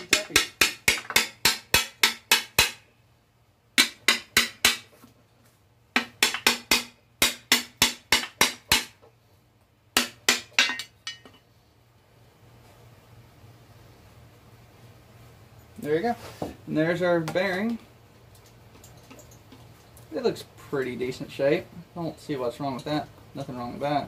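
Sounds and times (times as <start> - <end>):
hammer tapping on metal: 3.8 - 4.9, 6.0 - 9.0.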